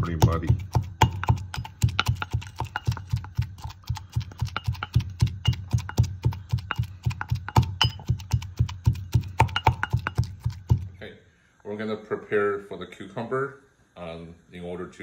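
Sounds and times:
pestle pounding in ceramic mortar: 0:00.0 - 0:11.0.

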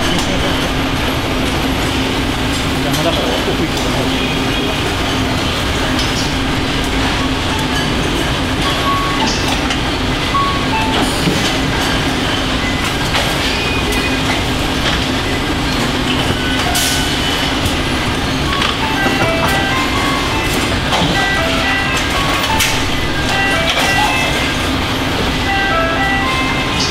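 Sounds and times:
electronic beeping melody: 0:18.3 - 0:26.9.

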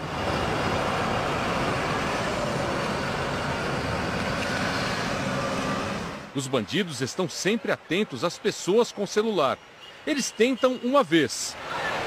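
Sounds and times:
city street traffic rumble: 0:00.0 - 0:12.0.

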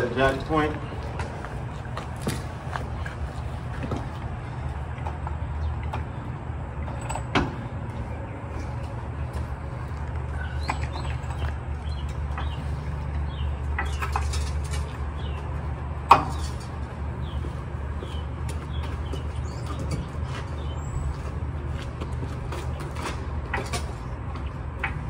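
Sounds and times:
small birds chirping: 0:07.6 - 0:25.0.

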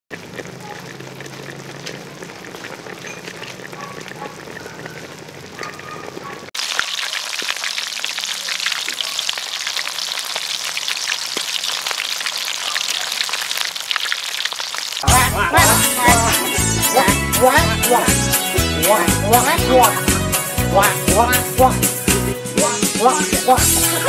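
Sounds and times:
deep-frying sizzle with pops: 0:00.1 - 0:15.1
pot simmering: 0:00.1 - 0:18.1.

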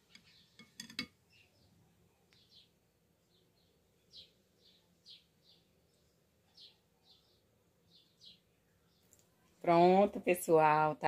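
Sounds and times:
faint bird chirps: 0:00.0 - 0:09.6
metal spoon clinking glass bowl: 0:00.6 - 0:01.2.

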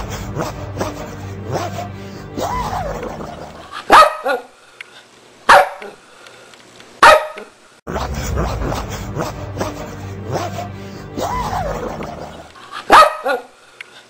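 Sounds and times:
music: 0:00.0 - 0:03.6, 0:07.9 - 0:12.5
dog barking: 0:03.9 - 0:04.5, 0:05.5 - 0:06.0, 0:07.0 - 0:07.5, 0:12.9 - 0:13.5.

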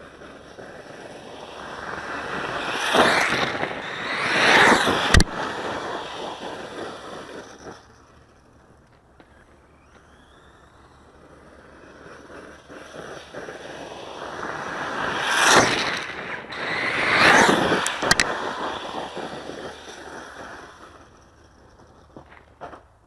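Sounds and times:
rc truck motor whine: 0:00.0 - 0:22.9
tyres on gravel: 0:00.0 - 0:23.0
sharp clicks: 0:05.0 - 0:05.4, 0:17.7 - 0:18.4.

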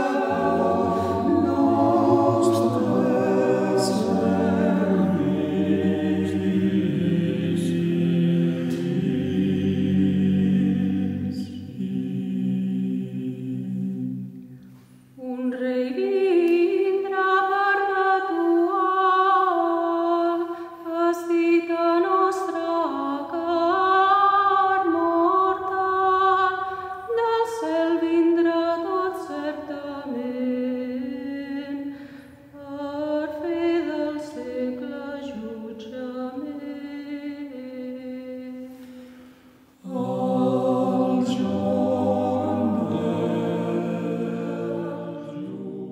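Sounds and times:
low voices singing: 0:00.0 - 0:14.7, 0:38.6 - 0:45.9
higher voices singing melody: 0:00.0 - 0:16.3, 0:38.4 - 0:45.9.

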